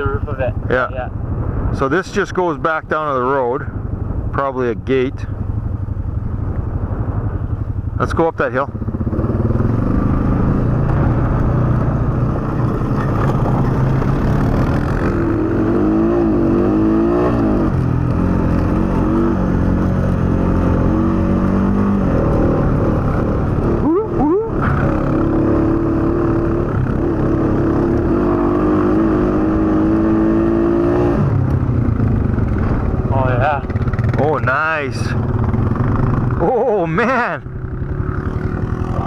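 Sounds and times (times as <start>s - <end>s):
atv engine revving under load: 8.7s - 39.0s.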